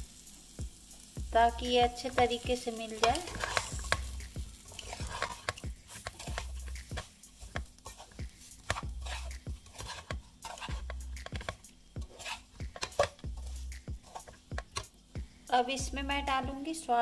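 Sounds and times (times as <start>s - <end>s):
metal spatula scraping metal pan: 3.0s - 14.9s.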